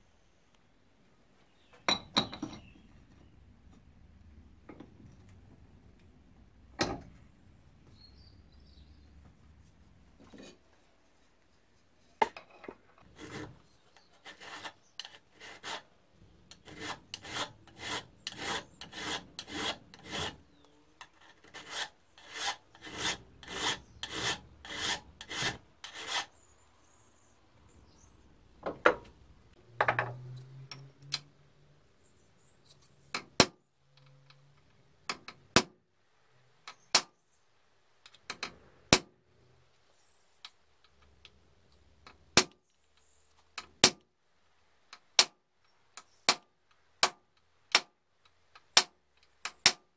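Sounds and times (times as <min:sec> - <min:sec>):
hand file rasping on metal: 0:13.0 - 0:15.9, 0:16.5 - 0:20.4, 0:21.0 - 0:26.3.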